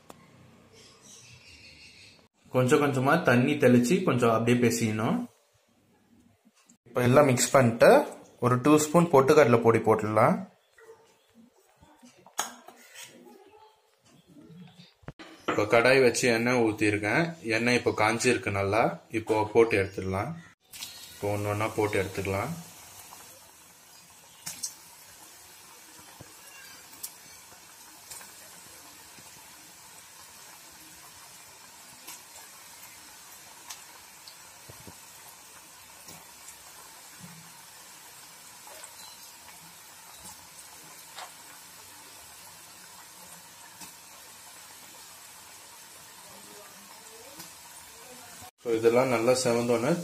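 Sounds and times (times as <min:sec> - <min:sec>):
batter sizzling in hot oil: 0:20.4 - 0:50.0
oil crackling: 0:20.5 - 0:50.0.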